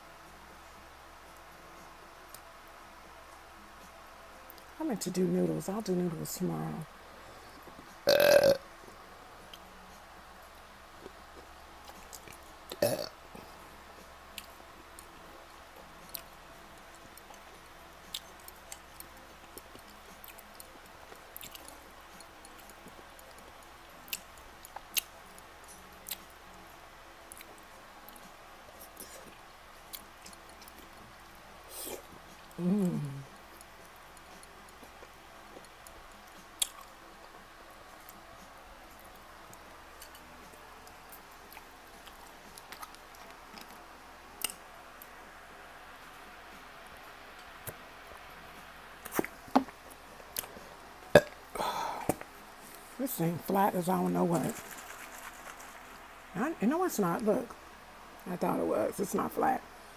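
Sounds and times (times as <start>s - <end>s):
faint steady hum: 0.0s - 59.9s
chewing food: 10.5s - 13.6s, 14.3s - 26.4s, 27.3s - 31.0s, 33.3s - 37.0s, 39.0s - 45.1s, 54.4s - 56.1s.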